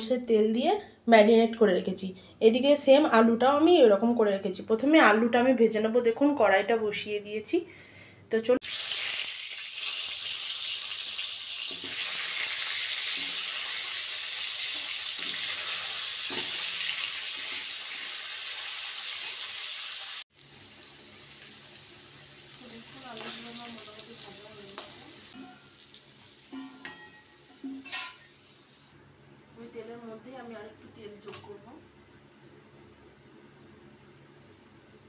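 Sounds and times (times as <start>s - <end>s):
potatoes sizzling in hot oil: 8.6s - 28.9s.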